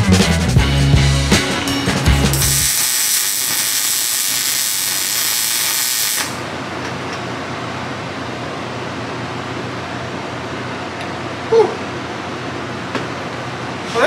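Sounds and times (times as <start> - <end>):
loud steady hiss: 2.4 - 6.5.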